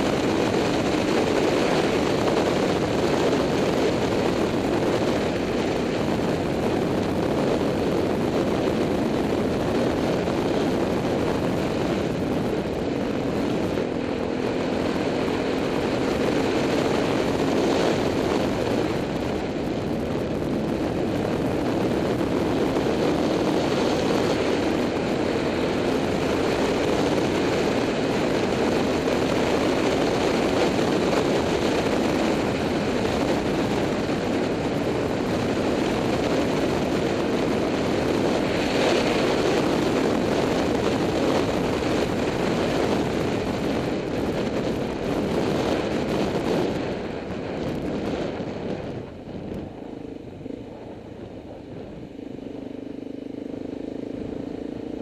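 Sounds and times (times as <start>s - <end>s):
motorcycle engine drone: 0.0s - 55.0s
wind rushing over microphone: 0.0s - 55.0s.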